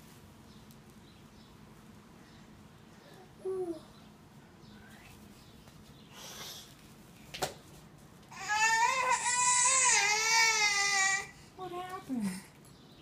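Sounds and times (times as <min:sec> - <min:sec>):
soft rustle: 0:04.3 - 0:08.3
baby crying: 0:08.3 - 0:11.4.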